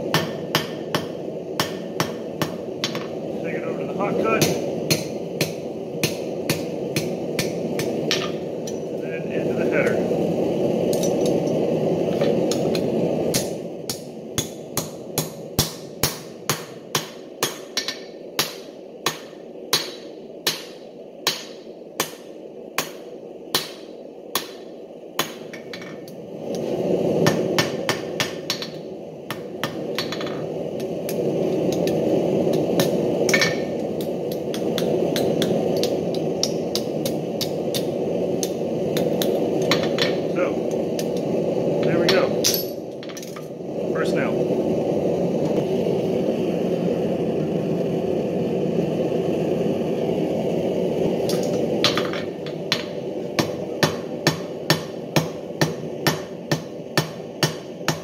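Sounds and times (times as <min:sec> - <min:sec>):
steady low rushing noise: 0:00.0 - 0:58.0
hammer striking metal on anvil: 0:00.1 - 0:03.1, 0:21.3 - 0:22.2.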